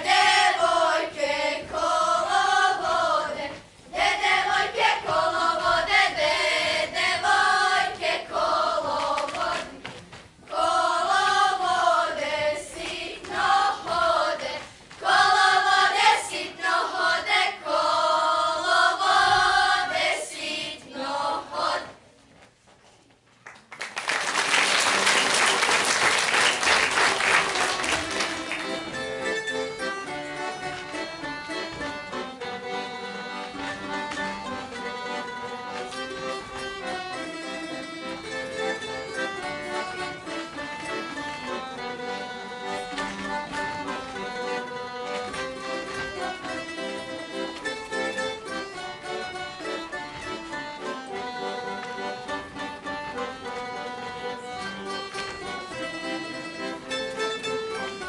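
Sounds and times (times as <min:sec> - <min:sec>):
accordion playing: 0:00.0 - 0:09.8, 0:10.5 - 0:21.8, 0:24.6 - 0:58.0
girls singing together: 0:00.0 - 0:22.0
audience applauding: 0:23.5 - 0:28.8.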